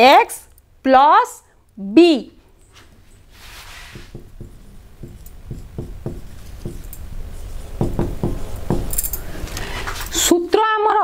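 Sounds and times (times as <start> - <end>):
marker pen writing on whiteboard: 3.6 - 8.9.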